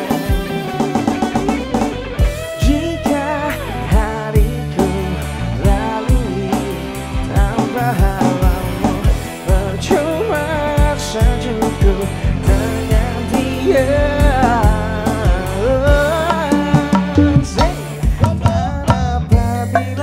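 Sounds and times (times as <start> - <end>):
bass guitar: 0.0 - 20.0
drums with regular beat: 0.0 - 20.0
electric guitar: 0.0 - 20.0
man singing: 0.0 - 20.0.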